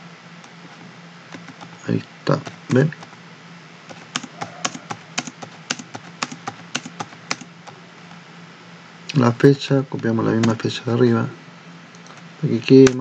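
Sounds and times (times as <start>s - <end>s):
faint low hum: 0.0s - 13.0s
typing on computer keyboard: 1.3s - 1.8s, 2.4s - 3.1s, 3.9s - 7.8s, 10.4s - 10.6s, 12.8s - 13.0s.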